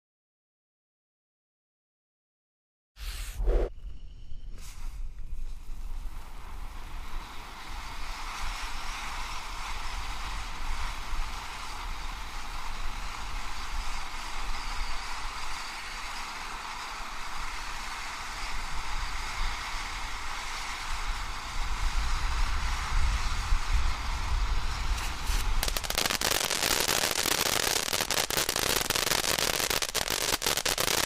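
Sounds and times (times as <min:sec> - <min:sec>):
low rumble: 0:03.0 - 0:04.5
firework fountain hissing: 0:04.6 - 0:31.0.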